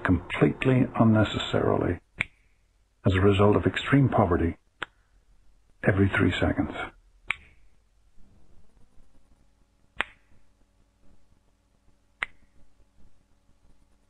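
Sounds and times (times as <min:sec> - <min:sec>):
finger snaps: 0:02.2 - 0:02.5, 0:04.8 - 0:05.0, 0:07.2 - 0:07.6, 0:10.0 - 0:10.3, 0:12.2 - 0:12.6.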